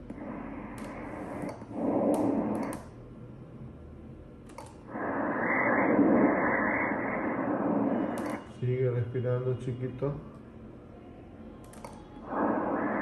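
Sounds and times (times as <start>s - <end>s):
doppler ultrasound whoosh: 0.0s - 2.8s, 4.8s - 8.6s, 12.2s - 13.0s.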